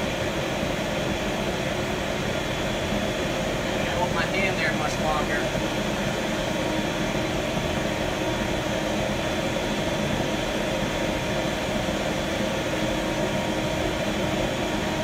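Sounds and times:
propane torch flame hissing: 0.0s - 15.0s.

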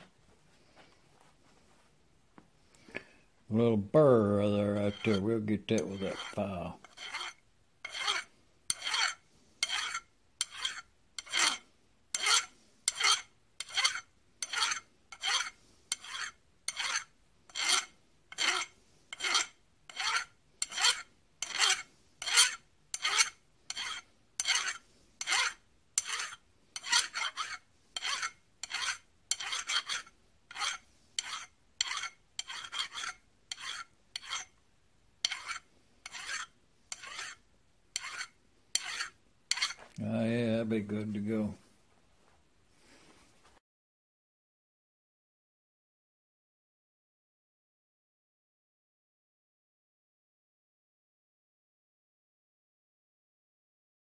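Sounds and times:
hand file rasping on brass: 4.2s - 34.6s, 35.2s - 37.4s, 38.0s - 39.9s.

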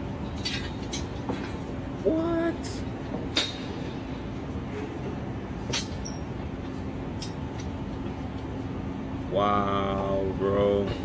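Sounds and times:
faint steady hum: 0.0s - 11.0s
low traffic rumble: 0.0s - 11.0s
broad city hiss: 7.9s - 11.0s.

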